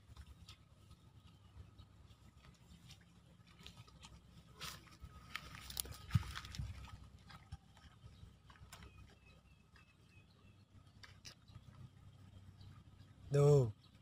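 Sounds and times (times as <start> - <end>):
rustling in dry grass: 2.0 - 7.5.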